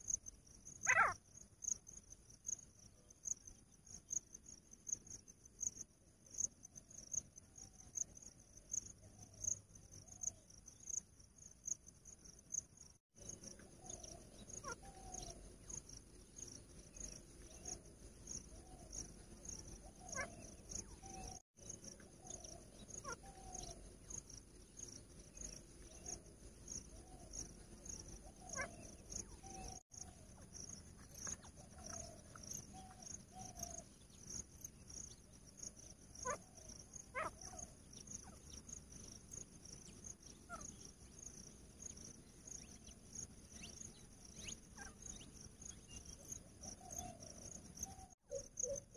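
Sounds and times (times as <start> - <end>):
cricket chirping: 0.0 - 48.9
francolins calling: 0.8 - 1.2, 13.6 - 15.8, 16.4 - 24.2, 25.3 - 30.4, 31.1 - 34.0, 36.1 - 38.8.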